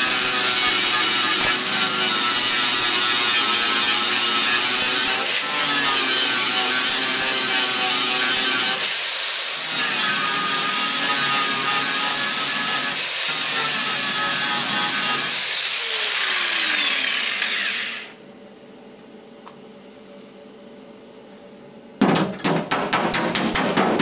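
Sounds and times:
angle grinder grinding metal: 0.0s - 18.1s
grinder spinning down: 15.8s - 18.1s.

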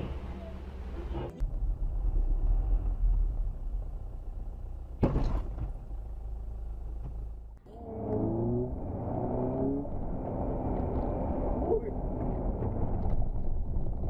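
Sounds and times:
car road and engine rumble: 0.0s - 14.0s
hum rising in steps: 5.8s - 14.0s.

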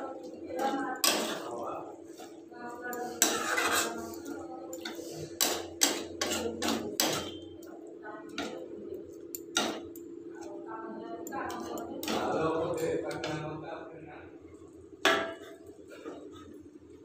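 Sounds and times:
steady low hum: 0.0s - 17.0s
metal spatula scraping metal pot: 0.6s - 7.5s.

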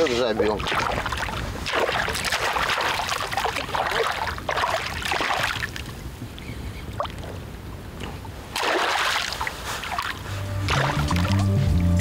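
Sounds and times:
water lapping: 0.0s - 11.9s
fish splashing in water: 0.4s - 6.0s, 8.5s - 11.4s.

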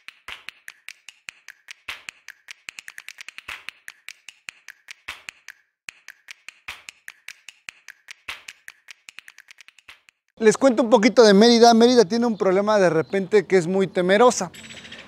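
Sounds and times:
sharp clicks and taps: 0.0s - 10.3s.

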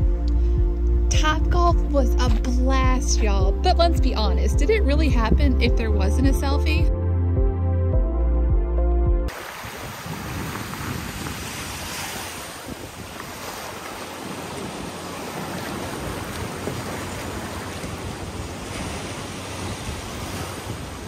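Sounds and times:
wind buffeting microphone: 0.0s - 6.9s, 9.3s - 21.0s
waves washing onto sand: 9.3s - 21.0s.

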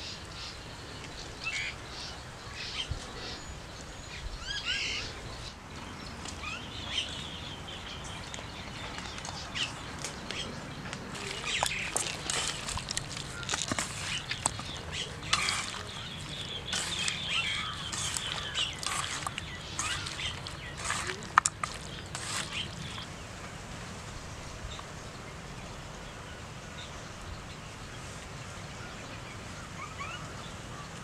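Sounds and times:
small birds chirping: 0.0s - 23.4s
outdoor background hiss: 0.0s - 31.0s
food squelching mixed by hand: 11.0s - 23.1s.

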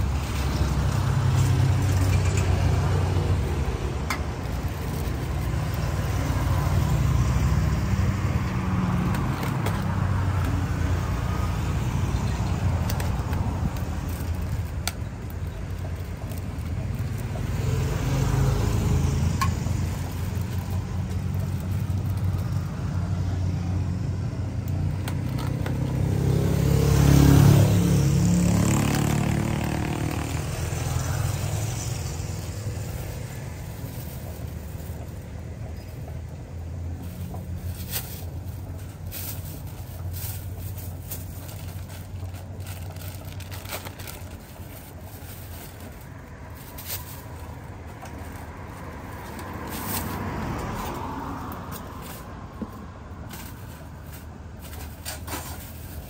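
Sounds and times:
plastic bags and cups handled: 0.0s - 23.3s, 24.6s - 26.1s, 28.4s - 56.0s
vehicle engine rumble: 0.0s - 56.0s.

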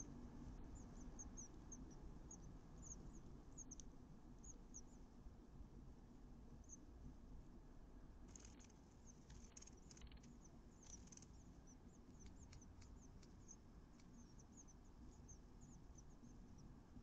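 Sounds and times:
soft clicks and scratches: 0.0s - 3.9s, 8.3s - 16.7s
nestling birds peeping: 0.0s - 5.1s, 8.3s - 17.0s.

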